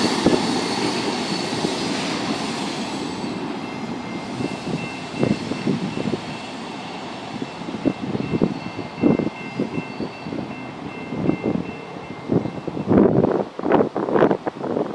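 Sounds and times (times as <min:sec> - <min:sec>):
crossing bell ringing: 0:00.0 - 0:13.2
freight train rolling: 0:00.0 - 0:14.9
wind buffeting microphone: 0:03.4 - 0:06.4, 0:07.3 - 0:14.9.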